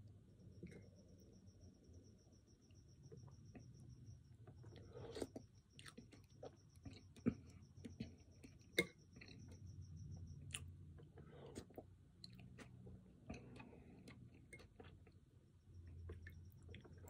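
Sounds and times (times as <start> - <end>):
soft chewing: 4.4 - 9.7, 10.4 - 17.0.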